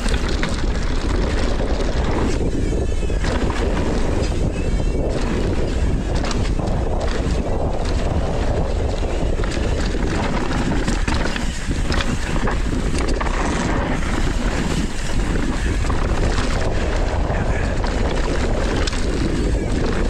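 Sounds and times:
bike knocking over rough ground: 0.0s - 20.0s
tyres on dirt: 0.0s - 20.0s
wind buffeting microphone: 0.0s - 20.0s.

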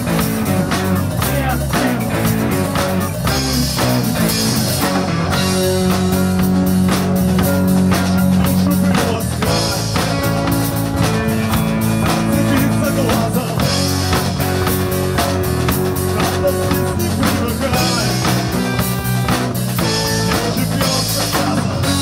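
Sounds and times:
bass guitar: 0.0s - 22.0s
drum kit beat: 0.0s - 22.0s
electric guitar chords: 0.0s - 22.0s.

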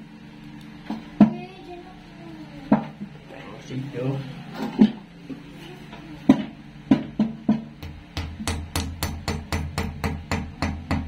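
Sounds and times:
hammer tapping wall plug: 6.3s - 11.0s.

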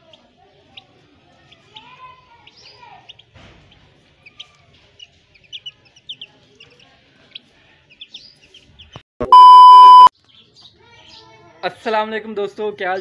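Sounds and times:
chicks peeping: 0.0s - 9.0s, 9.7s - 11.4s
electronic test tone beep: 9.2s - 10.1s.

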